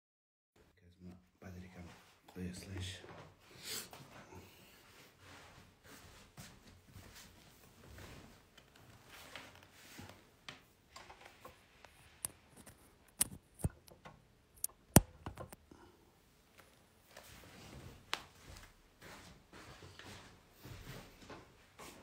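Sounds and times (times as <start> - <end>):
sharp clicks and knocks: 11.0 - 15.6.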